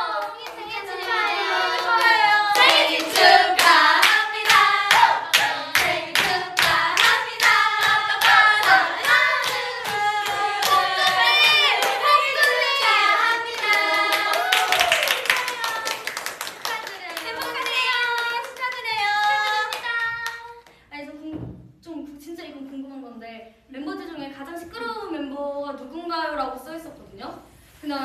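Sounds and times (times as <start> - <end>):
women singing in unison: 0.0 - 15.0
hands clapping: 13.6 - 20.8.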